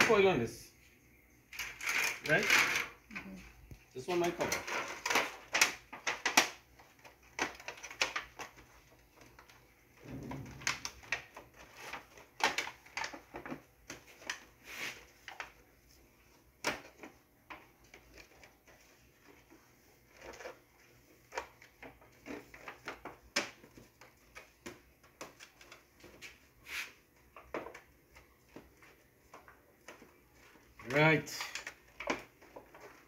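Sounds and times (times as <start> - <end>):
foil lid crinkling and clicking: 4.6 - 9.6, 10.7 - 14.5.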